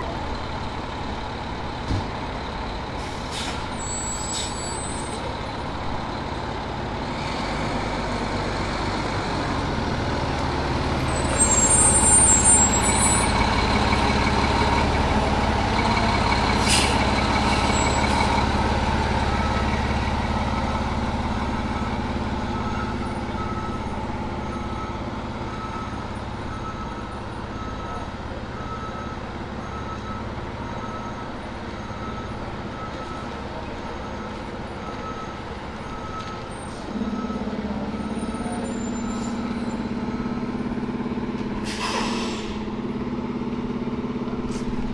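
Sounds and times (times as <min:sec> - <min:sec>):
diesel engine idling: 0:00.0 - 0:44.9
air brakes hissing: 0:03.0 - 0:05.3, 0:16.6 - 0:18.4, 0:41.6 - 0:42.7.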